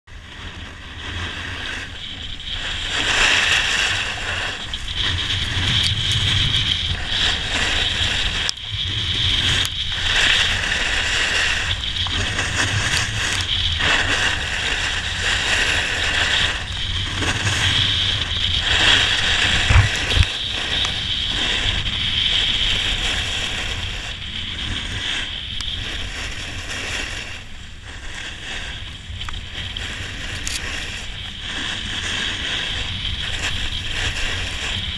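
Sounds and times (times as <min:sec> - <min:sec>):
skis scraping over snow: 0:00.1 - 0:34.9
wind rumble on microphone: 0:00.1 - 0:34.9.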